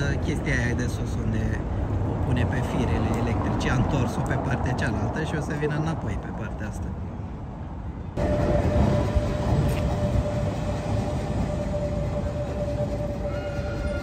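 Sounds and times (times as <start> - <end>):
streetcar rumbling on track: 0.0 - 14.0
electric whine: 8.2 - 14.0.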